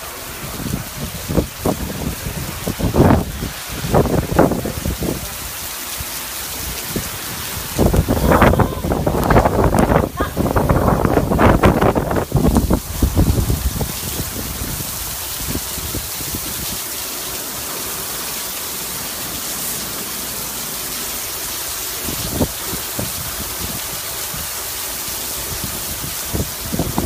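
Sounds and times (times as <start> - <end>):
heavy rain pouring: 0.0 - 27.0
wind gusts buffeting microphone: 0.3 - 16.8, 22.0 - 24.6, 25.4 - 27.0.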